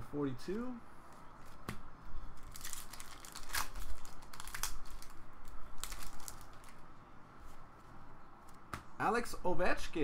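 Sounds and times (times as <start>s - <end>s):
wrapper crinkling and tearing: 2.4s - 6.8s.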